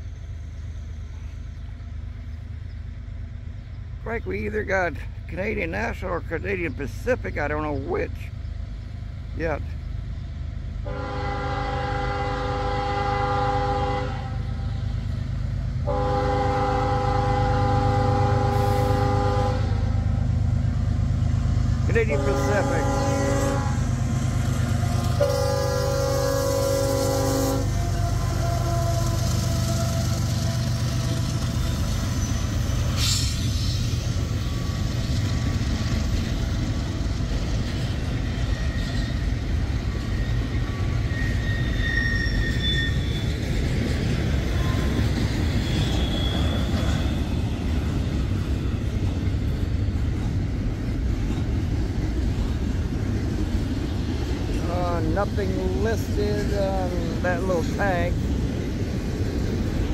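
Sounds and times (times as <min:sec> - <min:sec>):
freight train rumbling past: 0:00.0 - 0:59.9
locomotive horn: 0:10.8 - 0:14.6, 0:15.8 - 0:20.0, 0:21.9 - 0:23.9, 0:25.0 - 0:31.6
high squeals: 0:40.1 - 0:43.5, 0:44.6 - 0:47.5.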